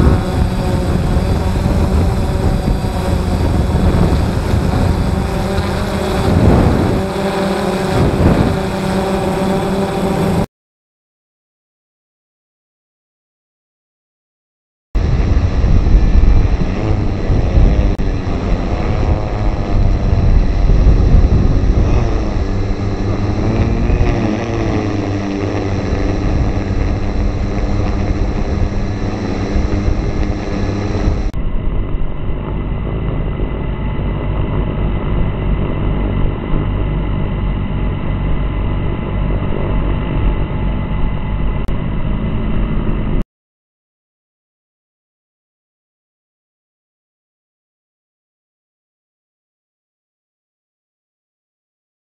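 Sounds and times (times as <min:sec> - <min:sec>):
drone motors and propellers: 0:00.0 - 0:10.5, 0:15.0 - 0:43.2
heavy low rumble: 0:00.0 - 0:10.5, 0:15.0 - 0:43.2.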